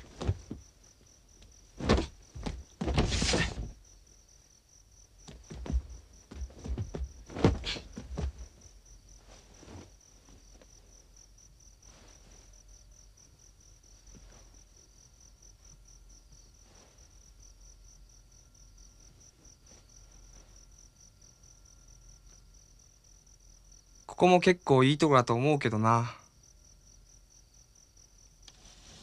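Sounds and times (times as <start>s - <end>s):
faint rustles: 0.0s - 3.8s, 5.2s - 15.9s, 16.5s - 17.4s, 18.9s - 21.0s, 28.4s - 29.0s
crickets chirping: 0.0s - 29.0s.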